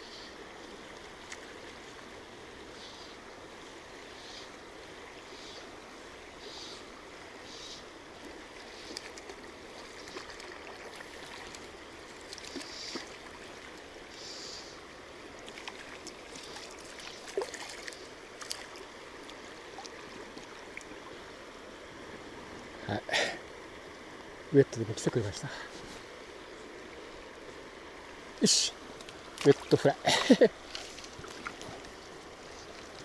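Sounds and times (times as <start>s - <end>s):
fly line clicks and rustles: 8.8s - 13.9s
river rushing over gravel: 28.2s - 33.0s.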